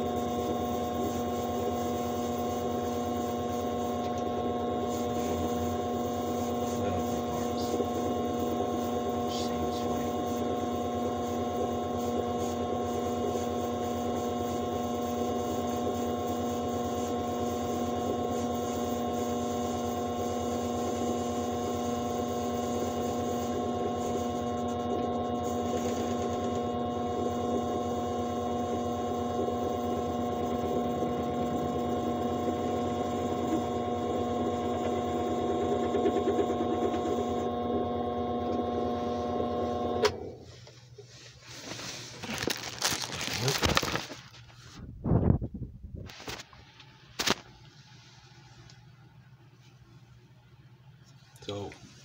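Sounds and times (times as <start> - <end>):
metal lathe motor whining: 0.0 - 40.2.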